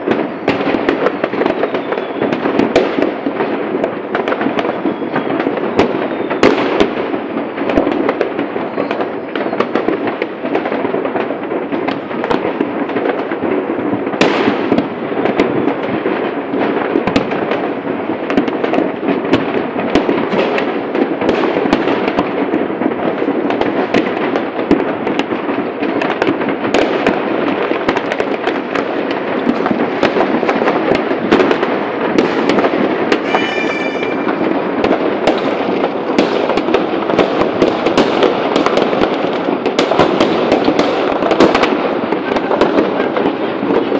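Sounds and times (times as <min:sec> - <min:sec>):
firework whistling: 0:00.0 - 0:43.9
fireworks crackling and banging: 0:00.0 - 0:43.9.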